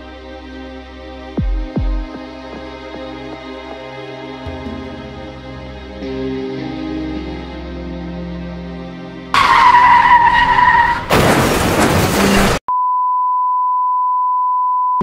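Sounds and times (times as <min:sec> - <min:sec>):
car crash: 0:09.4 - 0:12.6
steady high beep: 0:12.7 - 0:15.0.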